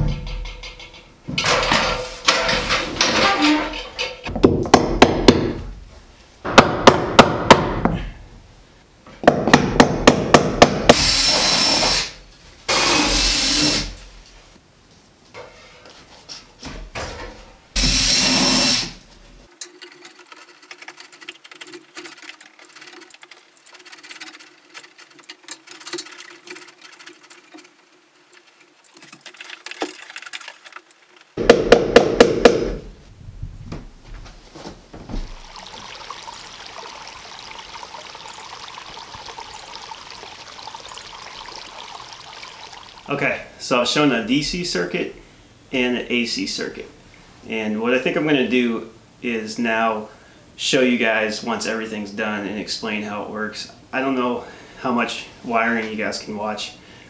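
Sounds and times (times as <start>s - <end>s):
power drill: 10.9s - 14.0s, 17.8s - 19.0s
hammer tapping staples: 31.4s - 32.8s.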